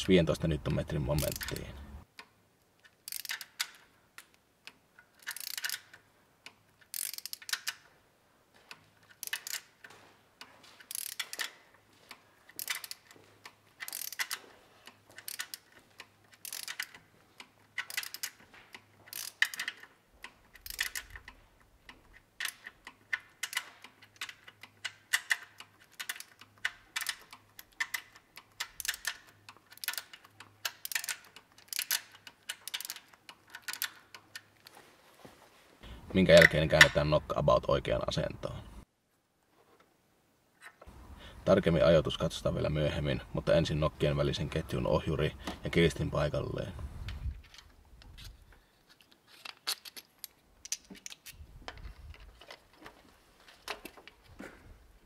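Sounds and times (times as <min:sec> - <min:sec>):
ratchet wrench clicking: 0:01.2 - 0:01.7, 0:03.1 - 0:03.9, 0:04.7 - 0:07.8, 0:09.2 - 0:09.7, 0:10.9 - 0:11.6, 0:12.6 - 0:13.2, 0:13.8 - 0:18.4, 0:19.1 - 0:19.9, 0:20.5 - 0:21.4, 0:22.4 - 0:34.4.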